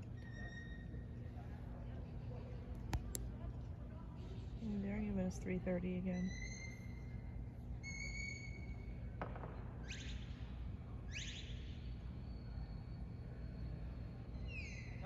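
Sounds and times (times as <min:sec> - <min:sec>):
low background hum: 0:00.0 - 0:15.0
dog handler's whistle: 0:07.8 - 0:08.8, 0:11.1 - 0:11.6.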